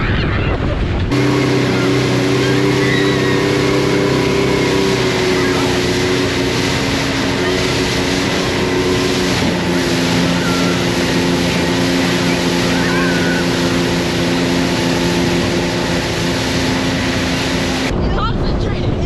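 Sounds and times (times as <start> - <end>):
motorboat engine running: 0.0 - 19.0
rushing wake water: 0.0 - 19.0
wind: 0.0 - 19.0.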